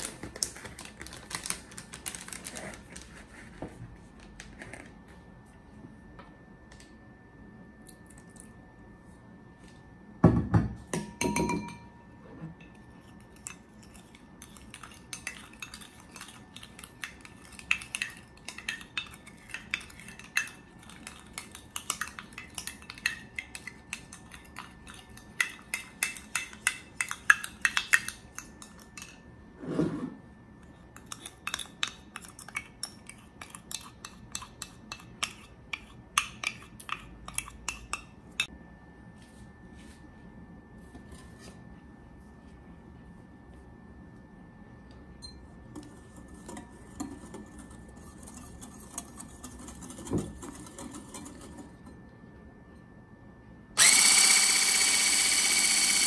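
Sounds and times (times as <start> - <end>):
spoon clinking and scraping ceramic: 12.6 - 29.2.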